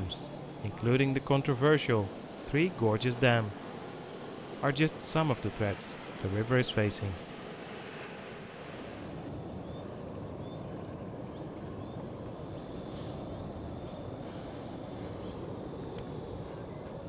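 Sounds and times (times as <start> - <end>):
rushing floodwater: 0.0 - 9.0.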